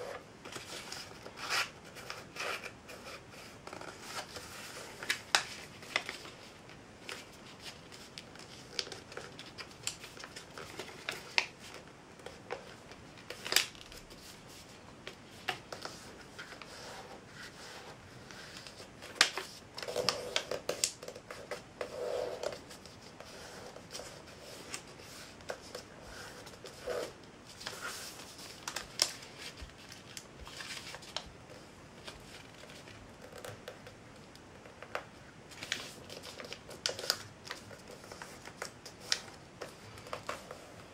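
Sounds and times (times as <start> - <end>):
paper rustling as folded: 0.0 - 34.0, 34.7 - 40.9.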